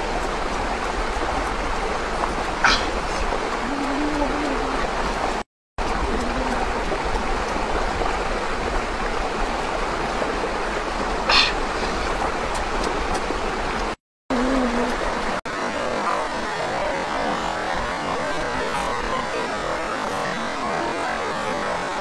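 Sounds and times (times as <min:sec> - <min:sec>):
stream running over rocks: 0:00.0 - 0:22.0.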